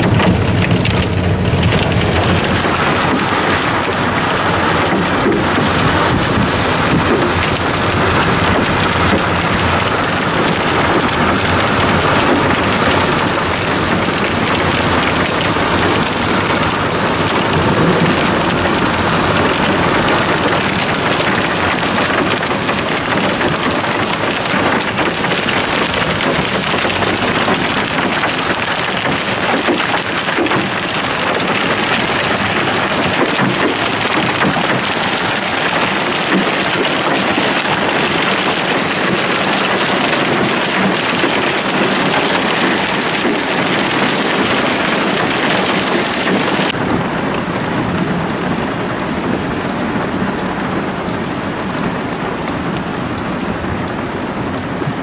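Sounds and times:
rain and hail pelting car: 0:00.0 - 0:55.0
tyres rumbling on road: 0:00.0 - 0:55.0.

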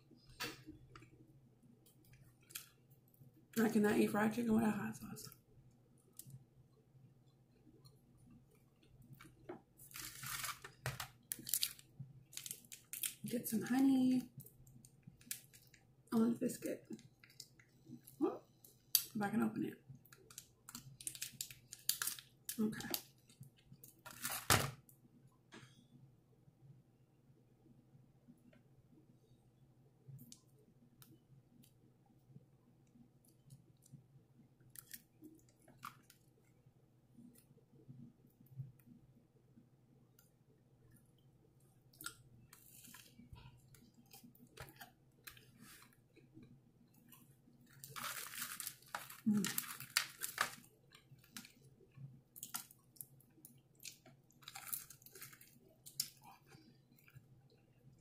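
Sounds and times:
honey packet clicks and crinkles: 0:08.8 - 0:15.9, 0:16.9 - 0:19.2, 0:19.9 - 0:24.9, 0:34.6 - 0:36.6, 0:41.9 - 0:46.5, 0:47.6 - 0:57.3
crackling paper rustle: 0:09.3 - 0:13.3, 0:20.1 - 0:23.1, 0:23.9 - 0:24.8, 0:47.7 - 0:51.6, 0:54.3 - 0:55.7
soft chewing: 0:16.9 - 0:19.1, 0:40.1 - 0:58.0.

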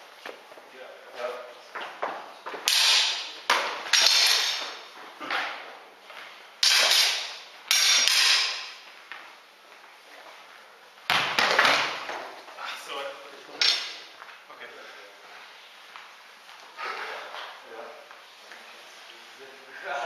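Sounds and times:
sparring weapons clashing: 0:02.6 - 0:05.7, 0:06.6 - 0:08.8.

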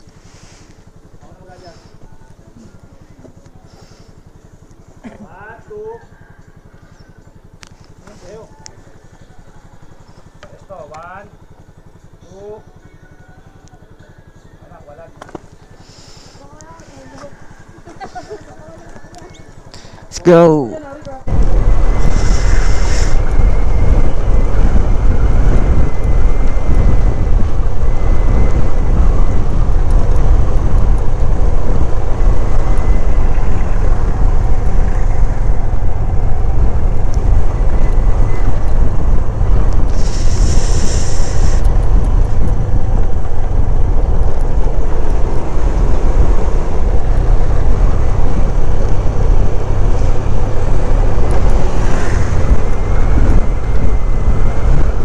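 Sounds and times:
motorcycle engine: 0:00.0 - 0:55.0
wind buffeting microphone: 0:21.2 - 0:55.0
short hiss: 0:22.1 - 0:23.2, 0:39.9 - 0:41.6.

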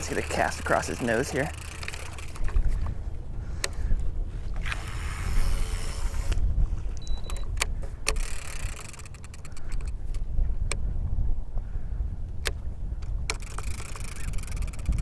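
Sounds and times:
fishing reel clicks: 0:00.0 - 0:02.7, 0:04.6 - 0:06.4, 0:07.3 - 0:10.8, 0:12.4 - 0:15.0
fishing reel spool whirring: 0:00.0 - 0:10.2, 0:13.1 - 0:15.0
low wind rumble on microphone: 0:00.0 - 0:15.0.

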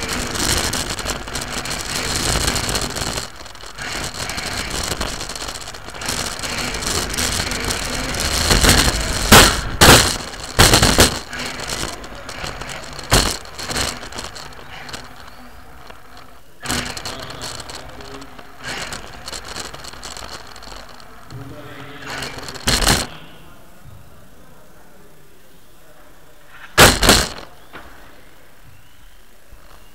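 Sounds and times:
loud knocks: 0:00.0 - 0:23.1, 0:26.8 - 0:27.5
toy car motor and rattling: 0:00.0 - 0:23.2, 0:26.6 - 0:27.6.

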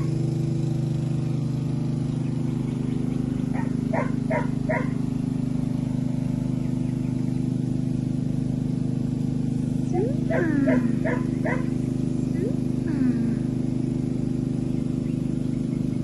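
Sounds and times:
steady low hum: 0:00.0 - 0:16.0
dog barking: 0:03.6 - 0:05.0, 0:10.2 - 0:11.8.

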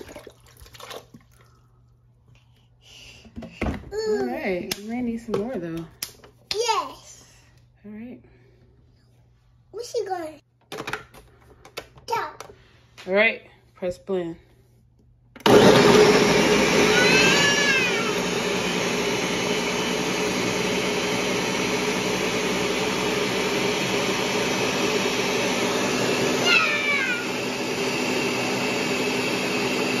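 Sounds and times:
blender motor drone: 0:15.4 - 0:30.0
blender squealing tones: 0:15.5 - 0:30.0.

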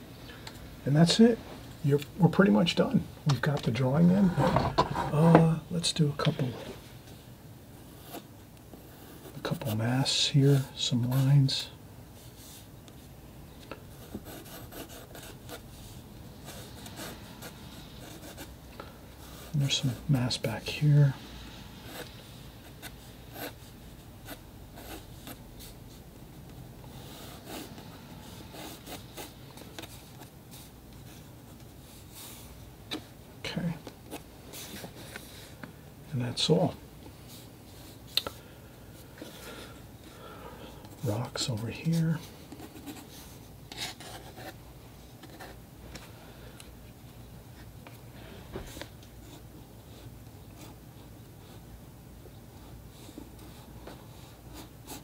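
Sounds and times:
pencil drawing on paper: 0:13.9 - 0:15.7, 0:21.8 - 0:25.7, 0:26.9 - 0:30.7, 0:52.9 - 0:55.0.

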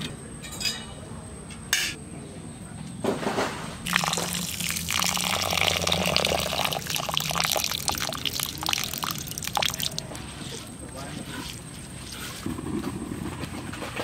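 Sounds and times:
water pouring onto rice: 0:03.9 - 0:10.2.

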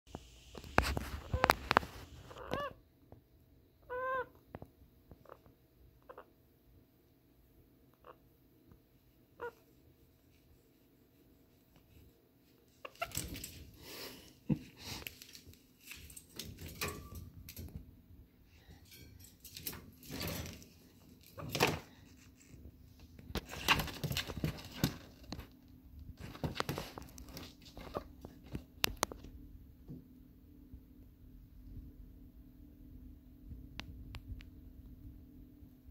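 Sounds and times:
low steady hum: 0:00.4 - 0:35.9
wire cage rattling and knocking: 0:15.9 - 0:17.8, 0:18.8 - 0:20.8.

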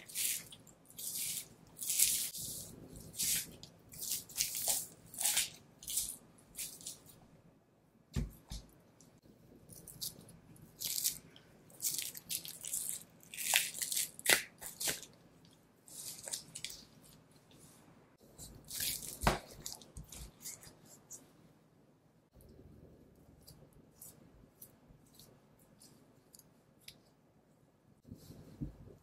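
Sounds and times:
knife cutting and scraping meat: 0:00.0 - 0:07.1.

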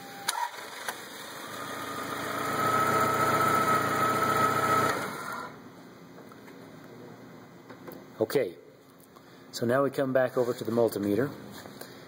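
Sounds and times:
starter motor cranking: 0:00.3 - 0:05.5.

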